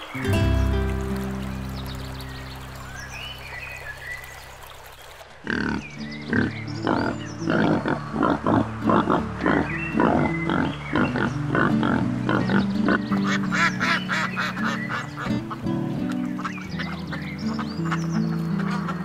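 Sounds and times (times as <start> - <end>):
background music: 0.0 - 3.7, 5.5 - 19.0
wild boar grunting: 5.4 - 13.6
ducks quacking: 5.4 - 19.0.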